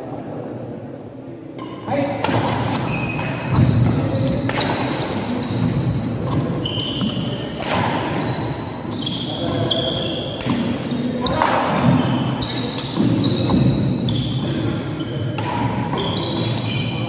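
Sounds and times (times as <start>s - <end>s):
crowd murmuring in echoing hall: 0.0s - 17.0s
shoe squeaks: 1.6s - 2.0s, 2.7s - 17.0s
racket striking shuttlecock: 2.2s - 8.3s, 10.4s - 12.0s, 15.3s - 16.5s.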